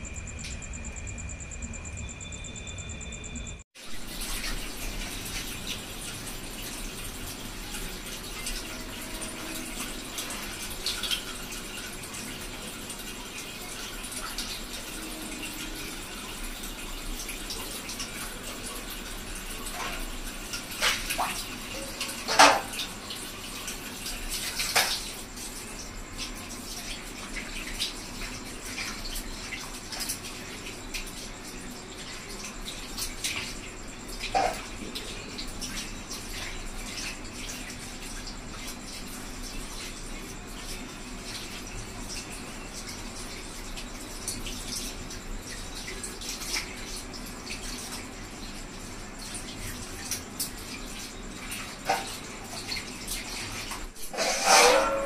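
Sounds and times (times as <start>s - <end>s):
running water splashing: 3.9s - 55.0s.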